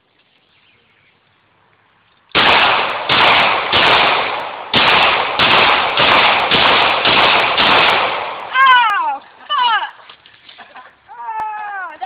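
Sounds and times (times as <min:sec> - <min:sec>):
pistol shots: 0:02.3 - 0:08.5.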